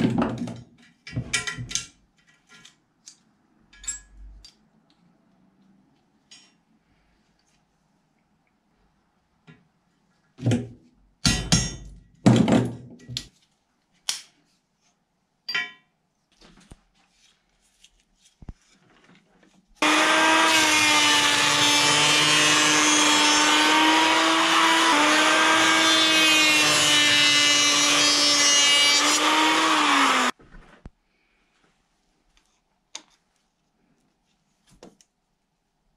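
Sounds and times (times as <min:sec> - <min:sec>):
electric hand planer shaving wood: 0:19.8 - 0:30.4.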